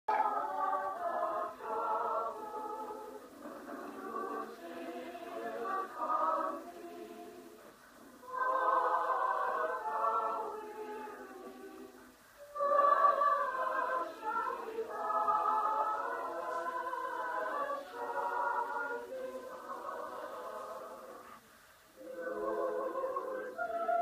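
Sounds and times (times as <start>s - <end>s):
women's choir singing: 0.1s - 24.0s.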